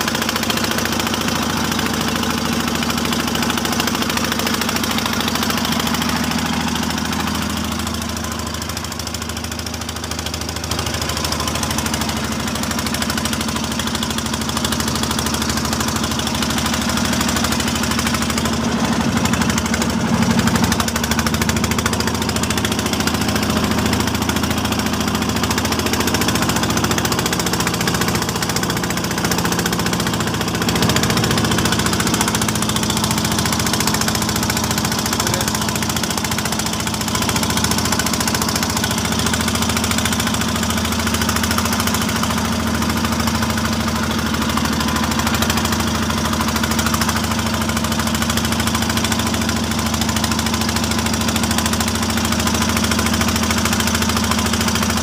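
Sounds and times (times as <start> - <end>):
boat engine running: 0.0 - 55.0.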